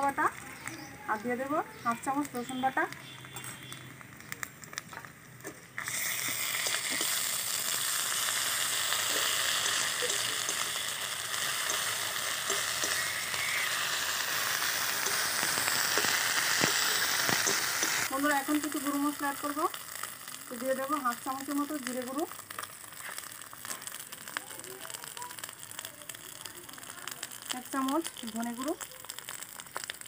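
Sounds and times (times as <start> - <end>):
onions sizzling in oil: 0.0 - 30.0
spatula clicks stirring: 9.1 - 13.6.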